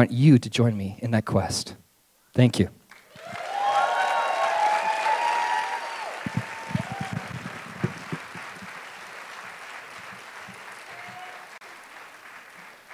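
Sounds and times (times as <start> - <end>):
audience applauding: 2.9 - 12.9
dull low thumps: 6.3 - 8.8.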